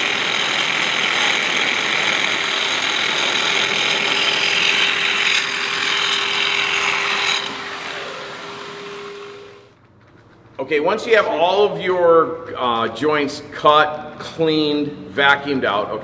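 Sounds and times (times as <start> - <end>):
power tool grinding concrete: 0.0 - 9.7.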